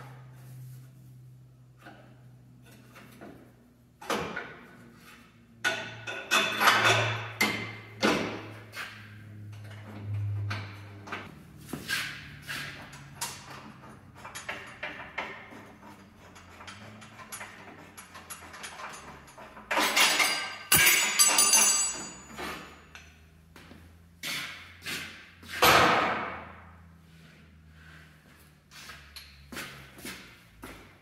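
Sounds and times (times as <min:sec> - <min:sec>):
metal tools clanking: 0:12.6 - 0:23.2.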